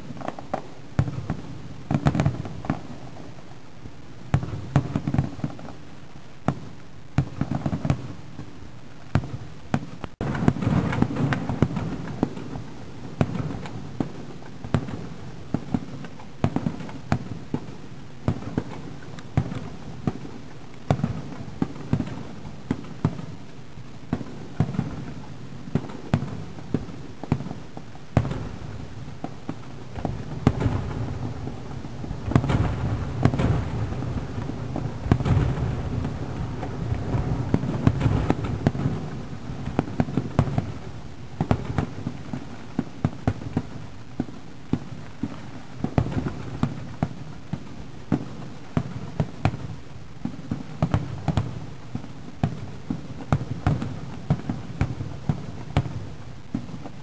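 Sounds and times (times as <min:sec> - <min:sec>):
distant firework bangs and crackles: 0:00.0 - 0:57.0.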